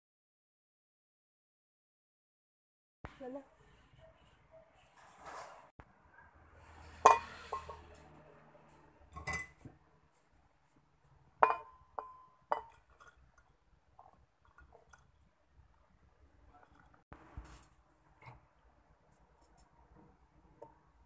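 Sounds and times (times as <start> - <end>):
glass blender jar clinking: 7.0 - 7.9, 9.2 - 9.7, 11.4 - 13.2.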